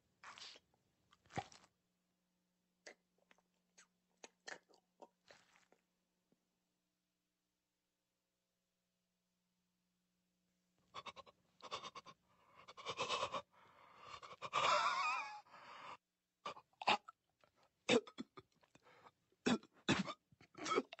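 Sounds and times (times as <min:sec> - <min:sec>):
coughing and spluttering: 0:16.5 - 0:17.2, 0:17.8 - 0:21.0.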